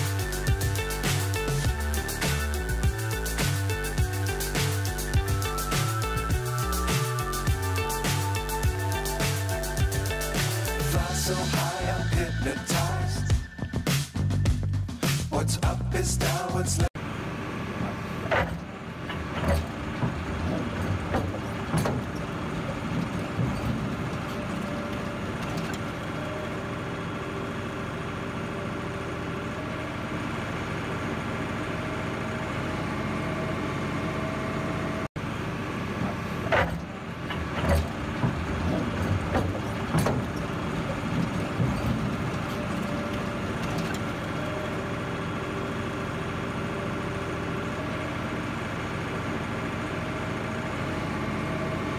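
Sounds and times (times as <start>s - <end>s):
diesel engines running: 0.0s - 51.9s
metal knocks and clanks: 17.8s - 26.0s, 35.9s - 44.5s.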